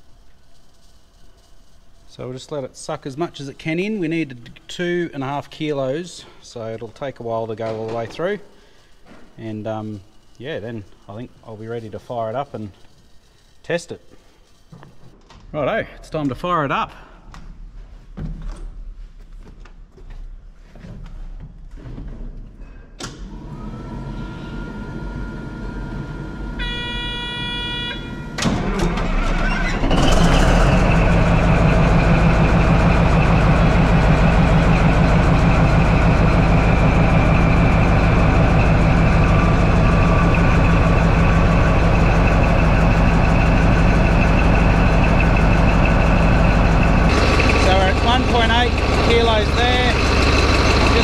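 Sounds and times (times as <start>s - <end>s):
diesel engine running loudly: 23.5s - 51.0s
horn blast: 26.6s - 29.1s
starter cranking: 28.4s - 51.0s.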